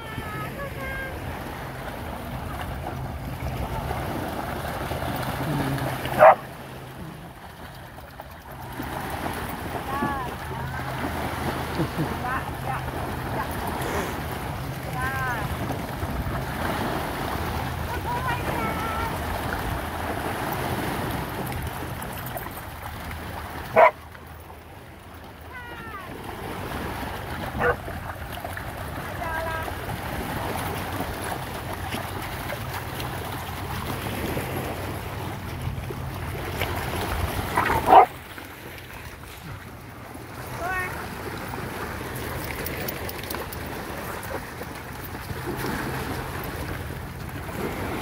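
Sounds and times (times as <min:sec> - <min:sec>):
small waves washing on rocks: 0:00.0 - 0:48.0
dogs splashing in water: 0:00.4 - 0:48.0
dog barking: 0:06.2 - 0:06.4, 0:23.8 - 0:24.0, 0:27.6 - 0:27.8, 0:37.6 - 0:38.1.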